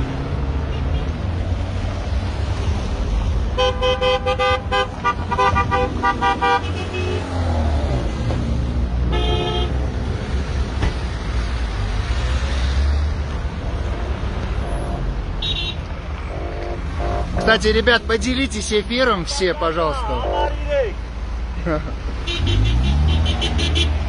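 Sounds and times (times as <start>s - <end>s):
low rumble of traffic: 0.0s - 24.0s
car horns honking: 3.5s - 7.6s, 9.0s - 10.0s, 13.9s - 21.0s, 22.2s - 24.0s.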